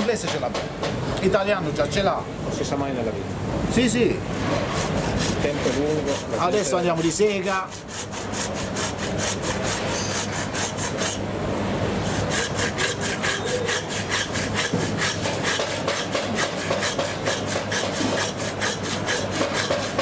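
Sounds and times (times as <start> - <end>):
hand saw cutting bone: 4.4 - 11.2, 12.0 - 20.0.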